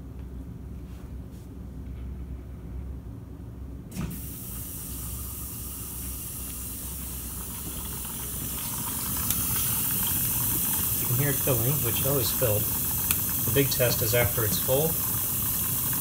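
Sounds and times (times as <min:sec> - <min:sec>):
water running into dishwasher: 0:04.1 - 0:16.0.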